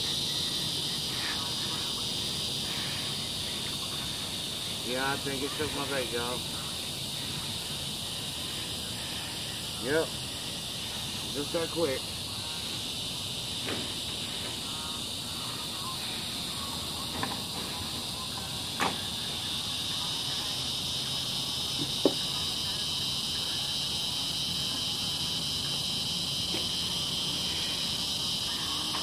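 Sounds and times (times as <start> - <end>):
insect chorus droning: 0.0 - 29.0.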